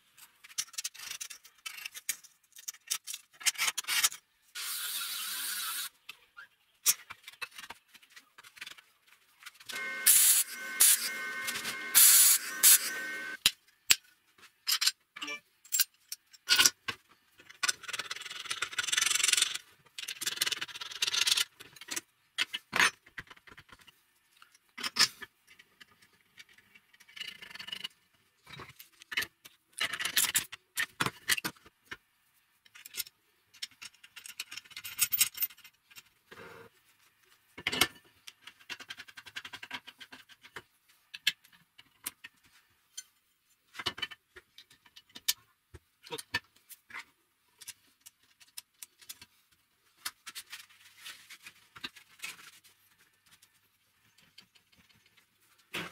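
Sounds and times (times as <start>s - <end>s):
metal parts clinking and knocking: 14.6s - 15.0s, 15.6s - 23.3s.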